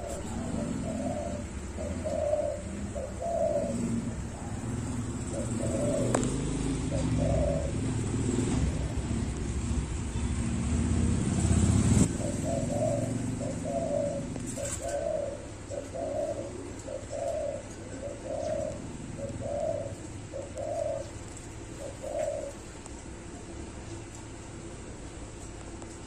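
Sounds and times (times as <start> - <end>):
dove cooing: 0.0 - 25.5.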